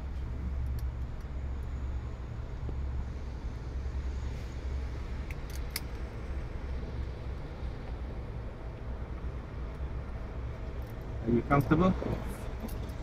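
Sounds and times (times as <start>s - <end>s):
steady low rumble: 0.0s - 13.0s
harness buckle clicks: 5.2s - 6.0s.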